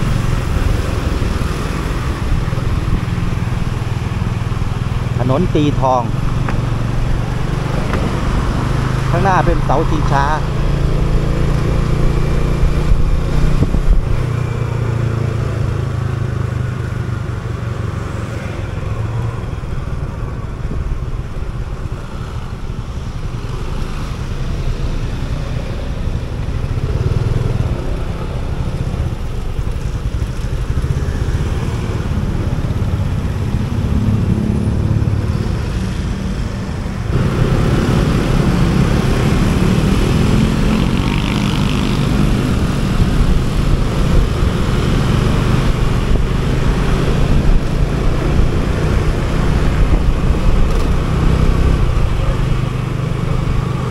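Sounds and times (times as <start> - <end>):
city traffic noise: 0.0 - 53.9
wind and road noise: 0.0 - 53.9
motor scooter engine: 26.0 - 35.3.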